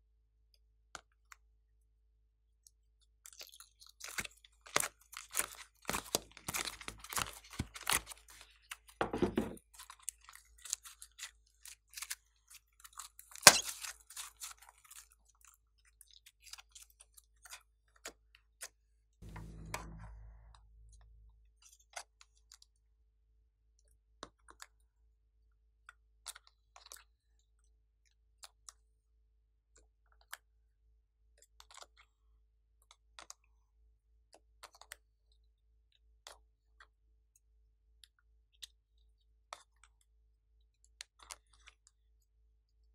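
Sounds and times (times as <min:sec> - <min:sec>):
brief low sound: 0:19.2 - 0:21.5.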